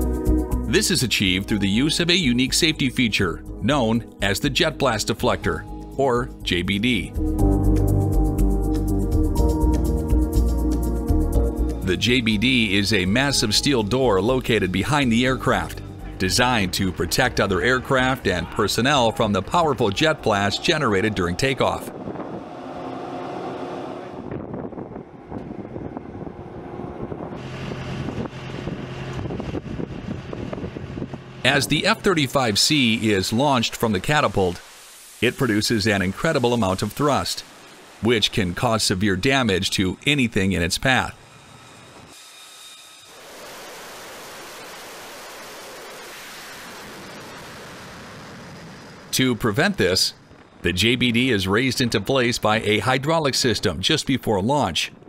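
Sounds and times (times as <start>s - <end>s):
distant machinery: 12.0s - 34.3s, 35.2s - 53.1s
jet engine roaring: 15.4s - 34.1s, 43.1s - 52.5s
wind on the microphone: 20.0s - 31.9s.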